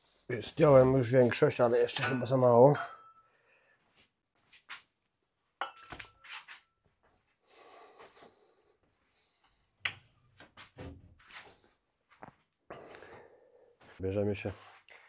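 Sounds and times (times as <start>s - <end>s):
rustling and shuffling: 0.0s - 1.7s, 10.3s - 12.6s
metal weights clinking: 1.8s - 3.3s.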